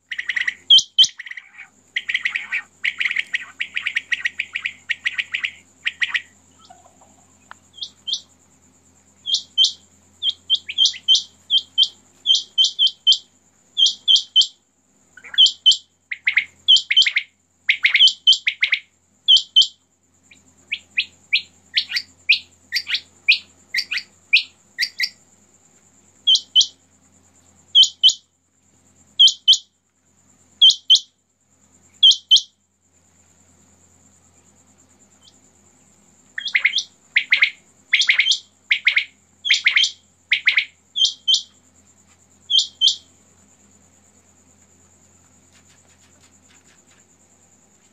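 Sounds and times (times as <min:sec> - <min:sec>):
downward-slurred quail calls: 0:00.1 - 0:08.3, 0:15.2 - 0:19.7, 0:36.4 - 0:41.5.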